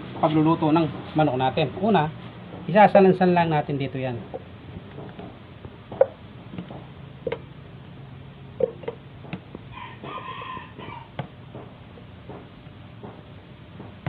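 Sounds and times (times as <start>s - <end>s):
rooster crowing: 9.7s - 11.3s.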